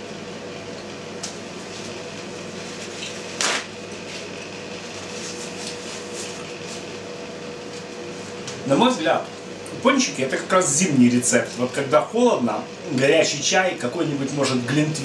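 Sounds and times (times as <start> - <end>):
paper towel ripping: 3.3 - 4.3.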